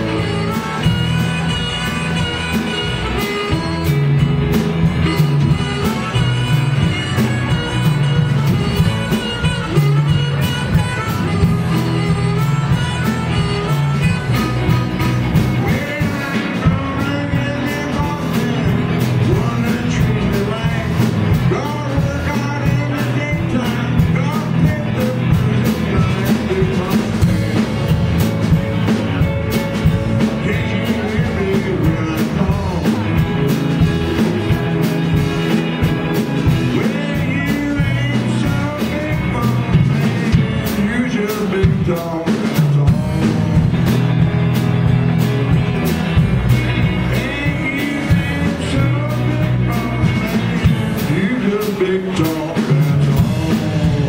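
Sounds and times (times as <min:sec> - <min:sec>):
person singing: 0:00.0 - 0:28.0, 0:28.9 - 0:44.5, 0:45.9 - 0:54.0
blues band playing: 0:00.0 - 0:54.0
blues harmonica: 0:00.0 - 0:54.0.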